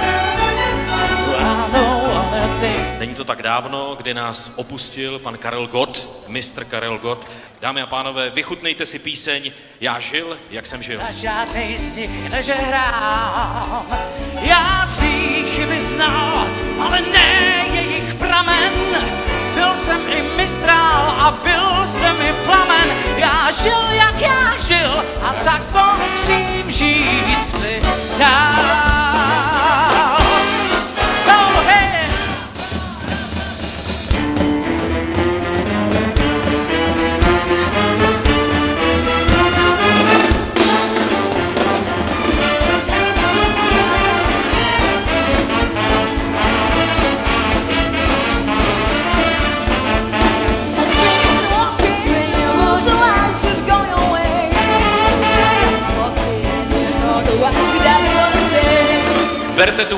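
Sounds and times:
big band playing: 0:00.0 - 0:07.6, 0:10.1 - 0:59.9
woman singing: 0:01.1 - 0:03.0, 0:12.4 - 0:30.4, 0:50.8 - 0:59.4
singer with vibrato: 0:01.2 - 0:03.0.

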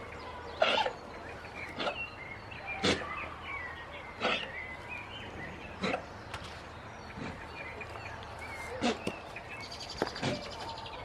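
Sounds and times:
birds chirping faintly: 0:00.0 - 0:11.0.

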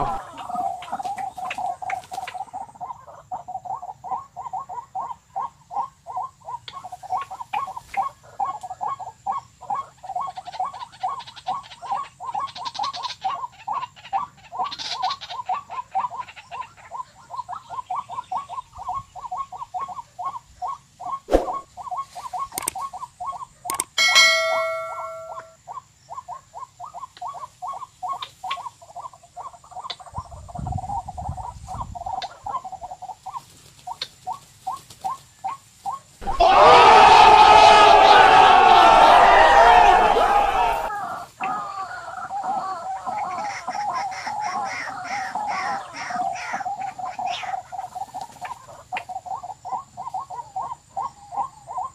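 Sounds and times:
electronic bird call: 0:23.7 - 0:25.6.

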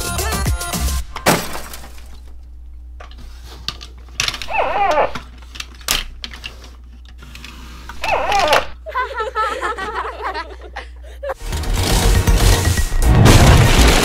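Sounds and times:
plastic toys clicking: 0:03.7 - 0:08.8
high yelping calls: 0:04.5 - 0:05.2.

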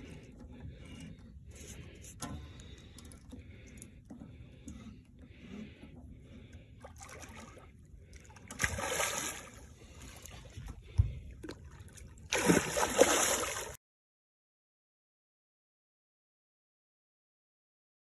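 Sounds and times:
fish splashing and thrashing: 0:06.4 - 0:13.8.

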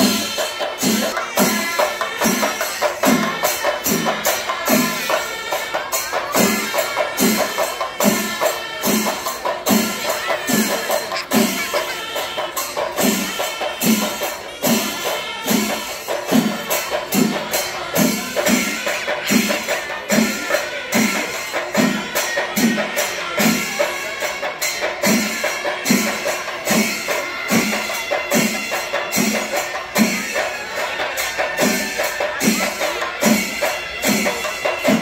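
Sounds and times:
deep drum beat: 0:00.0 - 0:23.0
rapid drum and cymbal strokes: 0:00.0 - 0:35.0.

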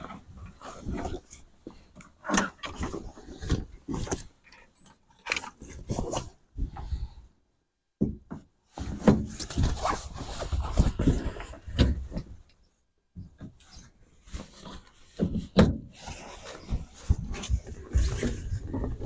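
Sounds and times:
tent poles being handled: 0:08.6 - 0:12.5, 0:13.2 - 0:19.0.

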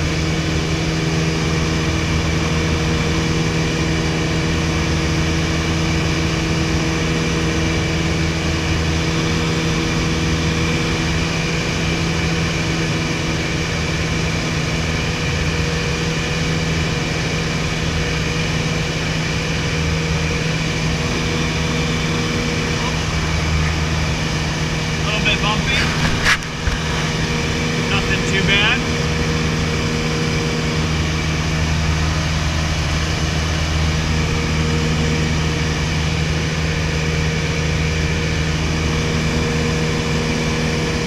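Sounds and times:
light aircraft engine droning: 0:00.0 - 0:41.0
airflow noise: 0:21.2 - 0:29.5.

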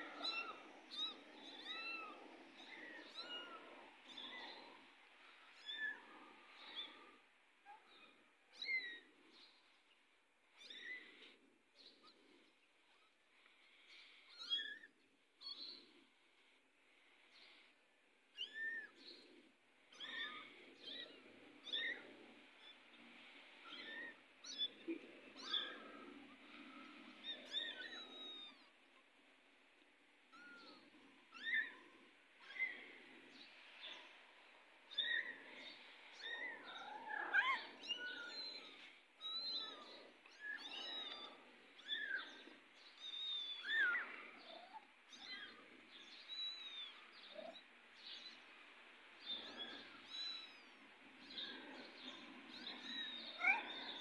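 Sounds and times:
kittens mewing: 0:34.9 - 0:45.6, 0:52.6 - 0:54.0.

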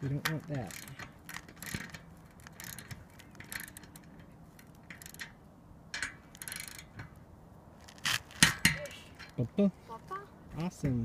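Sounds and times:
ratcheting wrench clicking: 0:00.3 - 0:07.1.

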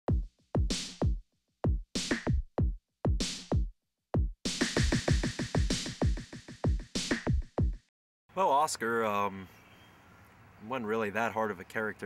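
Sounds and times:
drum machine beat: 0:00.1 - 0:07.9.

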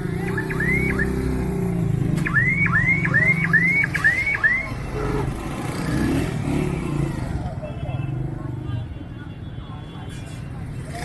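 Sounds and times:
vehicle alarm chirping: 0:00.1 - 0:01.4, 0:02.2 - 0:04.8.

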